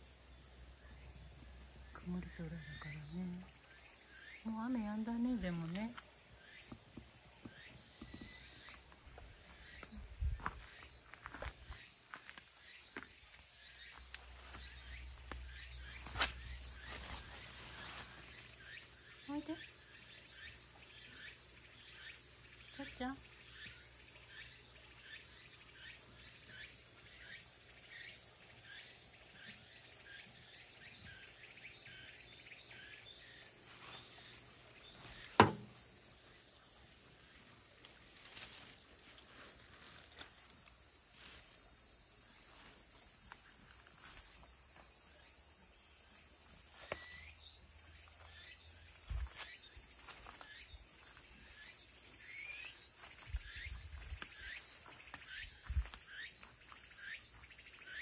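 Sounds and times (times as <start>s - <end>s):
insects chirping: 0.0s - 58.0s
sharp knock: 35.3s - 35.8s.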